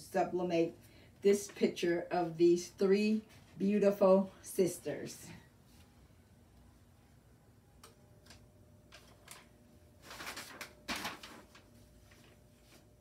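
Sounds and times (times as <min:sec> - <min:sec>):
paper rustling: 0:08.9 - 0:12.9.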